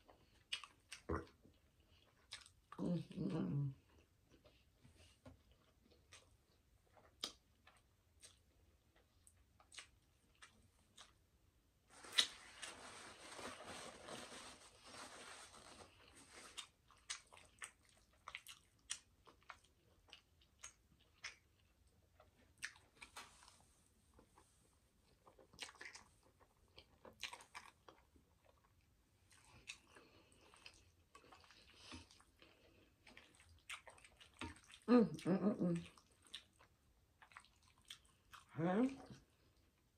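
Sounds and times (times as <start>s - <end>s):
chewing with wet smacks: 0.0s - 11.3s, 16.5s - 23.5s, 25.0s - 39.9s
paper napkin rustle: 11.9s - 16.6s.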